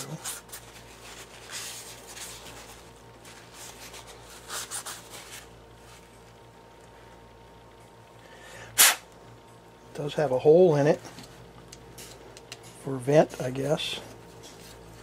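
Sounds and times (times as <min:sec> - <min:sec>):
paper towel rubbing: 0:00.0 - 0:06.0.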